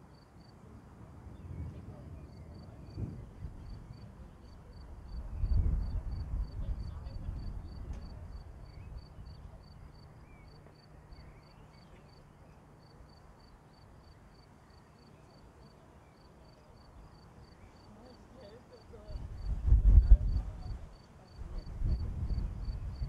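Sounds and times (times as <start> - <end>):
distant thunder rumble: 1.4 - 10.0
insect chirping: 12.8 - 15.5.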